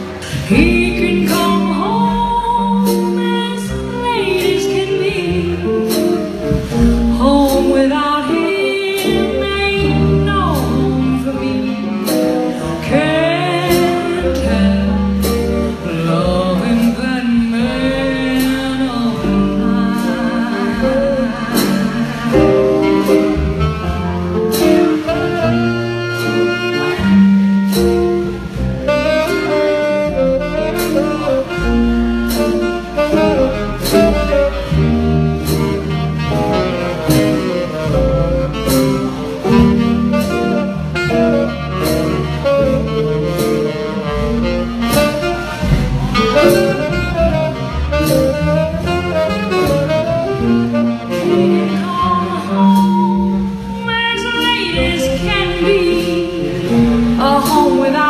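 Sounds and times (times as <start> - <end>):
live jazz band playing: 0.0 - 58.0.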